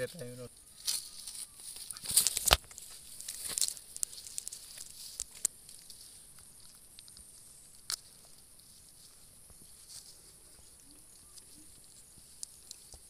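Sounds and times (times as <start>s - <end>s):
eel thrashing on dry grass: 0.8s - 6.0s.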